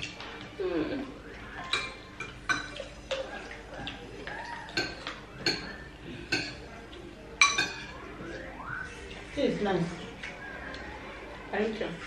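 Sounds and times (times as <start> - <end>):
spoons clinking on ceramic plates: 1.6 - 4.0, 4.7 - 6.7, 7.4 - 8.0.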